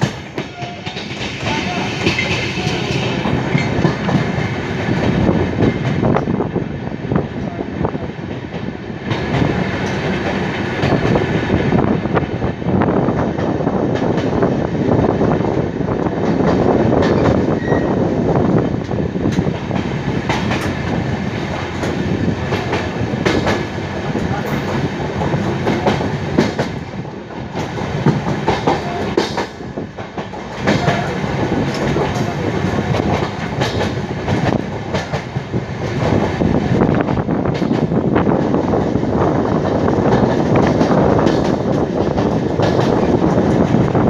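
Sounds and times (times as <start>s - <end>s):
wheels clacking over rail joints: 0.0s - 6.4s, 16.0s - 17.8s, 18.7s - 44.0s
train wheels rumbling on rails: 0.0s - 44.0s.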